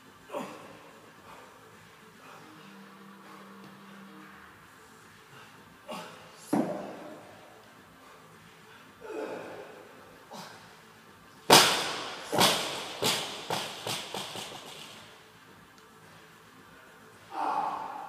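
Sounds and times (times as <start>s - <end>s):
barbell bouncing: 11.5s - 15.0s.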